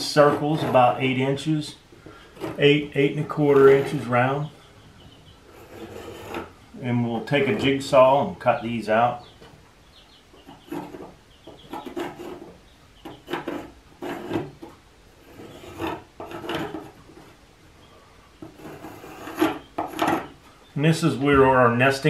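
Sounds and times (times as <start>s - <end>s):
pencil scratching on wood: 5.5s - 6.5s, 11.6s - 17.0s, 18.4s - 20.4s.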